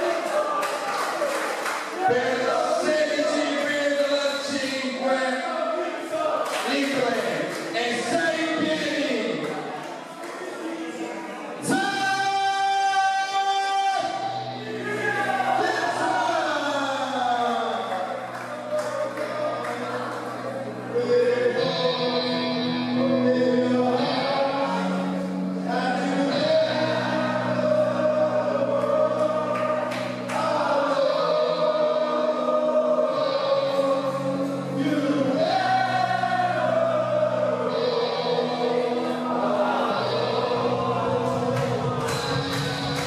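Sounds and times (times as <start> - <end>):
choir-like music with low bass: 17.9 - 43.0.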